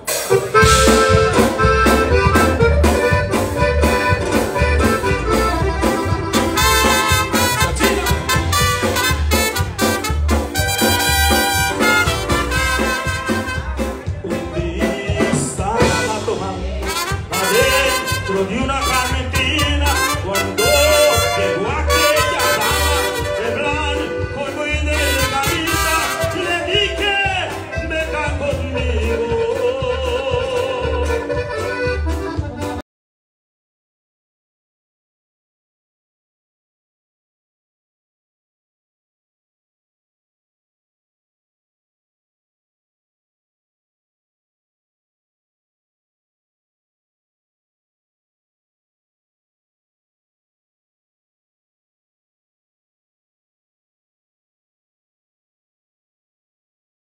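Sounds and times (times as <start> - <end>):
heavy bass pulse: 0.0 - 12.9
live band playing dance tune: 0.0 - 32.8
pulsing bass beat: 0.0 - 32.8
man singing into a microphone: 14.0 - 31.8.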